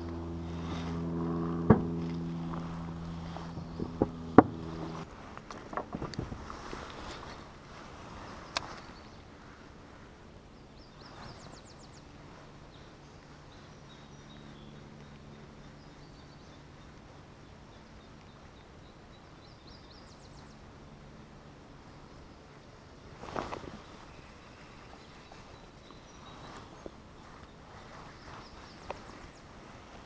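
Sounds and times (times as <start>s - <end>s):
faint low hum: 0.0s - 30.0s
small bird chirping: 12.7s - 20.6s, 23.4s - 29.6s.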